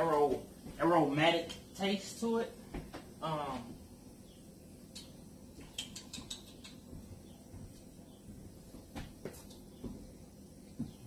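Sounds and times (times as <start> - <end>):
faint sharp clicks: 4.9 - 6.8.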